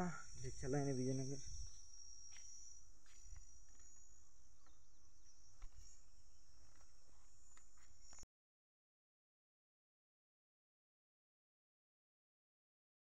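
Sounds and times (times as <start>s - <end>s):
insects chirring: 0.0s - 8.2s.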